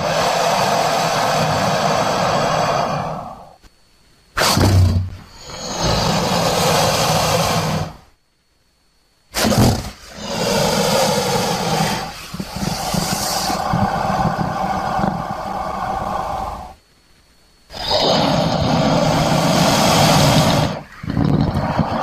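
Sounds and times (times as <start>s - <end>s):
crocodile calling low and rough: 9.4s - 16.8s.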